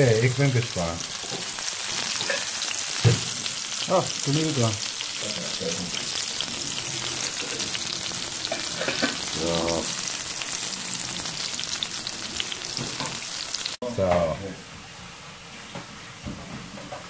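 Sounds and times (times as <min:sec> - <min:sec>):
cutlets sizzling in oil: 0:00.0 - 0:13.8.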